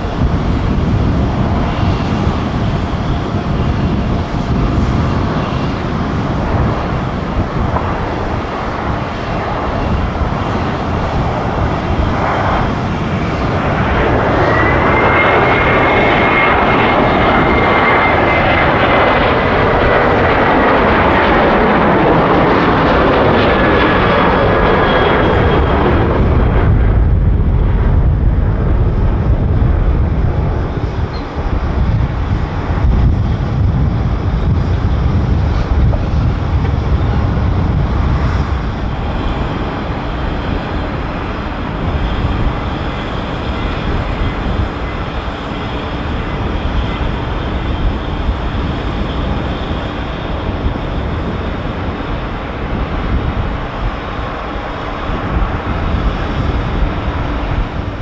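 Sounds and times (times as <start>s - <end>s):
high jet engine whine: 0.0s - 58.0s
jet engines roaring: 0.0s - 58.0s
deep low rumble: 18.5s - 40.6s.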